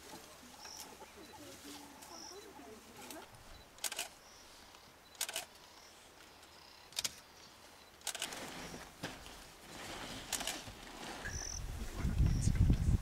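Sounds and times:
faint outdoor background: 0.0 - 13.0
camera shutter clicks: 3.8 - 4.1, 5.2 - 5.5, 8.0 - 8.4.

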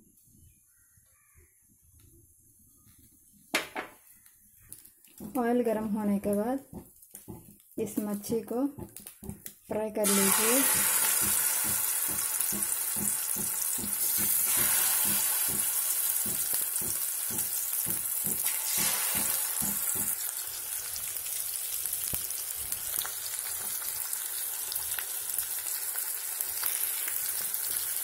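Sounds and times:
fish sizzling in hot oil: 10.0 - 28.0.

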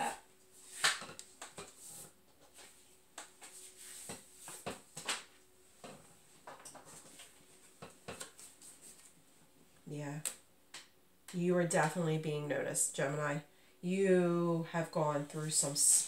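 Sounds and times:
cards clicking and rustling on table: 2.4 - 9.0.

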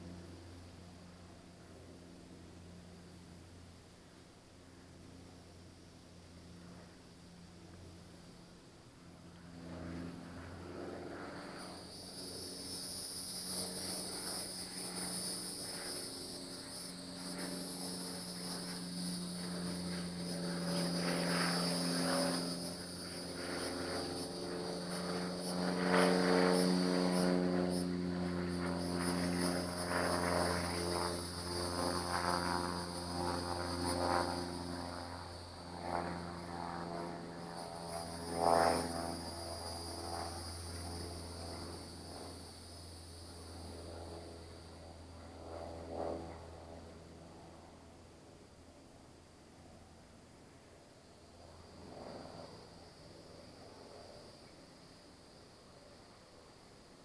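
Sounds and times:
distant engine droning: 0.0 - 48.0
high-pitched insect buzz: 9.6 - 45.3.

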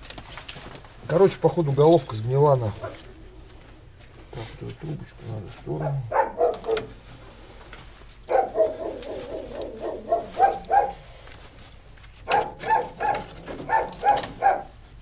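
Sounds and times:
dog barking: 5.7 - 7.0, 8.3 - 11.1, 12.2 - 14.8.

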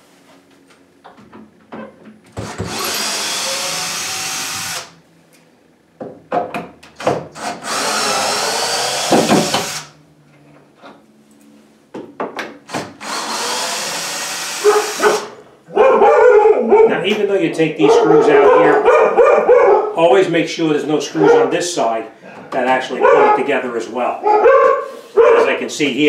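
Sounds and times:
cordless drill driving screws: 2.4 - 4.9, 7.4 - 9.9, 12.7 - 15.3.

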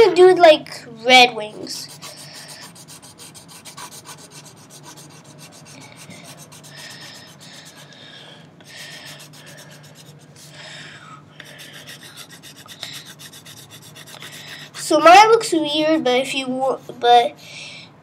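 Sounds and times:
pencil scratching on paper: 1.7 - 8.0, 8.7 - 10.6, 11.4 - 15.1.

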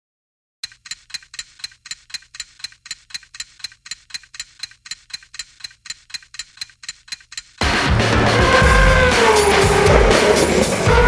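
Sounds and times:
clock ticking: 0.6 - 7.9.

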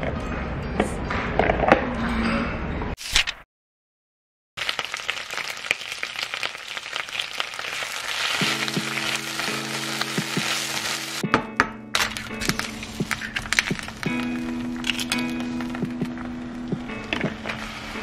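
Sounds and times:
spinach sizzling in frying pan: 4.6 - 11.2, 12.4 - 16.3, 17.4 - 18.0
soft background music: 8.4 - 18.0.

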